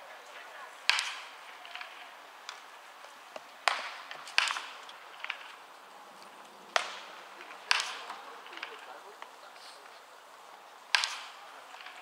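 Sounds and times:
baseball impacts echoing: 0.8s - 5.7s, 6.7s - 9.4s, 10.8s - 12.0s.

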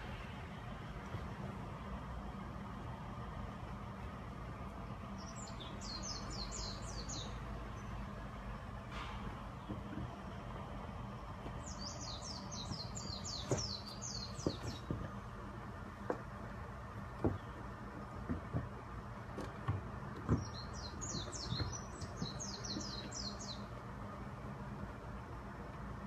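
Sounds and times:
songbird trills: 5.0s - 8.1s, 11.5s - 15.2s, 20.2s - 23.8s.

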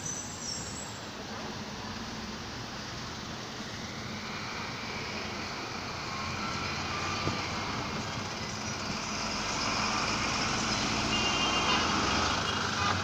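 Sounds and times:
road traffic: 0.0s - 13.0s.

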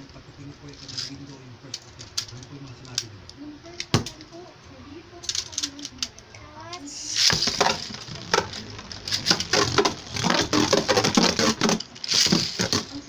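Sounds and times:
spinning tops clattering in plastic: 0.8s - 2.5s, 5.2s - 6.1s, 7.1s - 13.0s.

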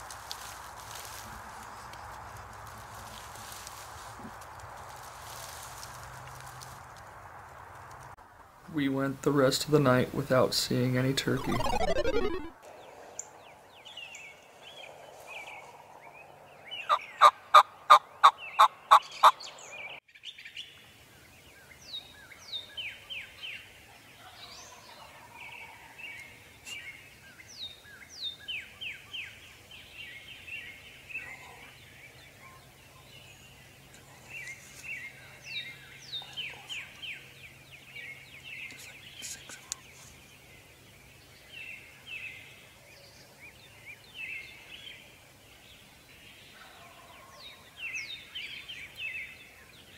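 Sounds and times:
songbirds chattering and whistling: 12.8s - 49.9s.

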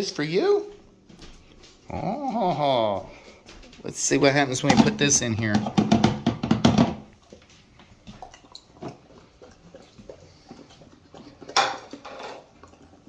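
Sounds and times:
dog chewing and licking: 7.1s - 13.0s.

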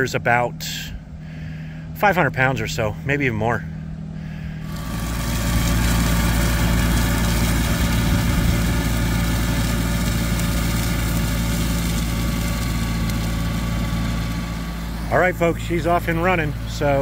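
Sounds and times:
tractor engine hum: 0.0s - 17.0s
mulcher rushing noise: 4.2s - 17.0s.

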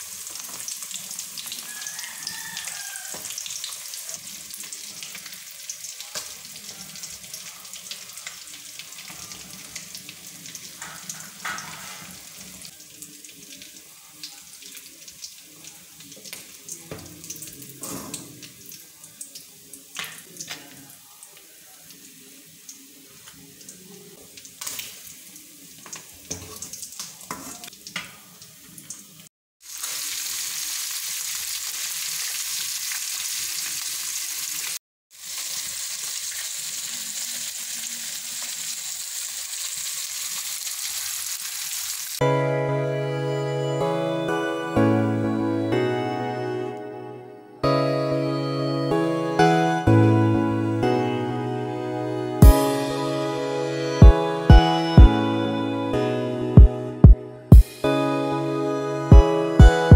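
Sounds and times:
fish sizzling in oil: 0.0s - 42.2s
metal spoon scraping a pan: 10.8s - 12.2s.

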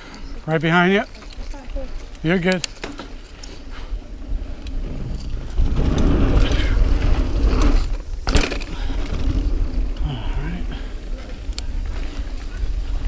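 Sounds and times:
wind and tyre rumble: 0.0s - 13.0s
bike rattle: 0.8s - 13.0s.

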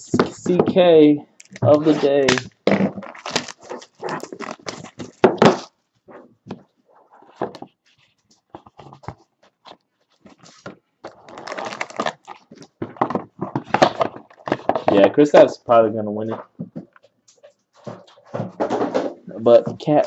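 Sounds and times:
plastic wrapper crinkling: 1.4s - 5.7s, 8.6s - 15.0s
cardboard box being opened: 1.6s - 5.7s, 10.2s - 15.0s
taps and knocks: 16.3s - 17.1s.

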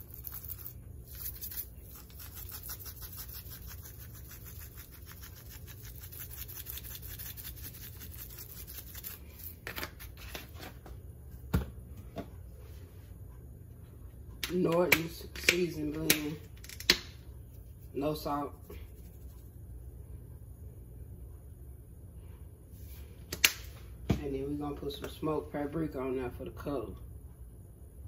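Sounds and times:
spice shaker rattling: 0.0s - 9.6s
low hum: 16.4s - 23.3s.

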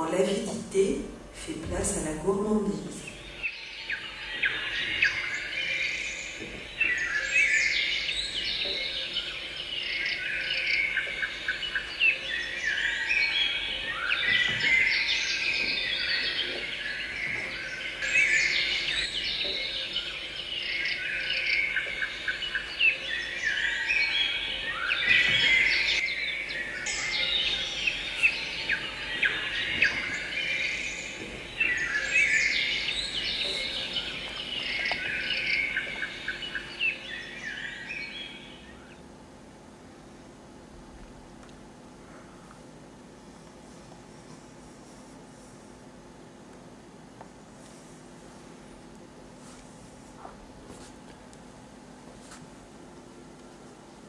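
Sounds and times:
songbirds chirping and singing: 1.8s - 39.2s.

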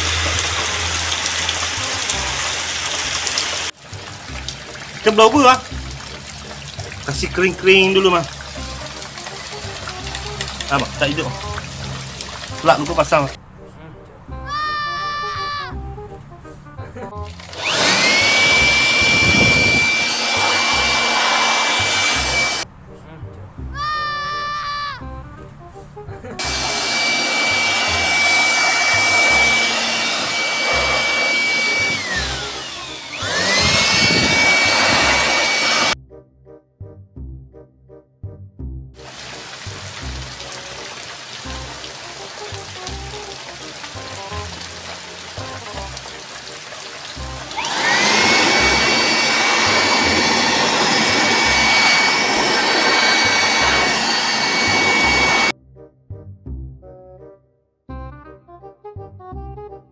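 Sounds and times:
electric air blower whining: 0.0s - 3.8s, 17.4s - 22.6s, 26.4s - 36.0s, 39.0s - 55.5s
rush of air: 33.5s - 35.5s.

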